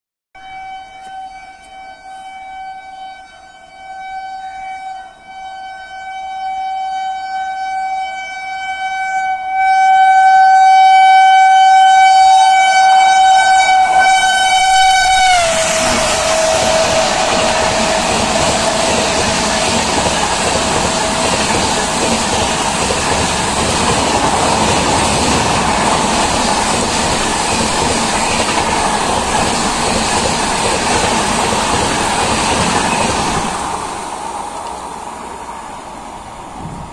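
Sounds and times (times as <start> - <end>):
train horn blast: 0.4 - 26.9
rumble of train coaches passing: 12.4 - 36.9.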